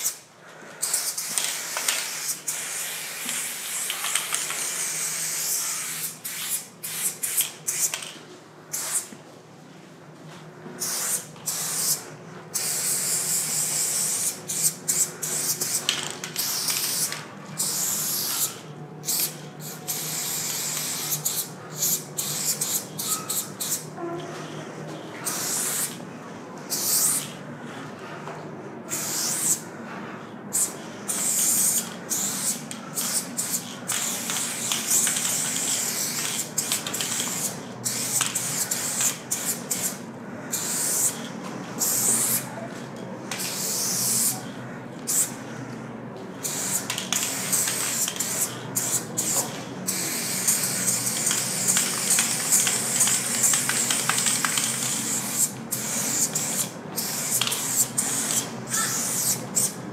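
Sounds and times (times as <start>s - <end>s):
spray paint can spraying: 0.8s - 8.1s, 8.7s - 9.1s, 10.8s - 12.0s, 12.6s - 23.8s, 25.3s - 26.0s, 30.5s - 40.0s, 40.6s - 41.2s, 43.3s - 44.4s, 46.4s - 59.8s.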